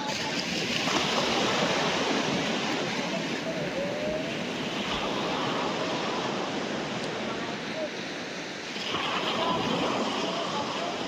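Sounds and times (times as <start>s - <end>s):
sea surf washing on shore: 0.0s - 11.0s.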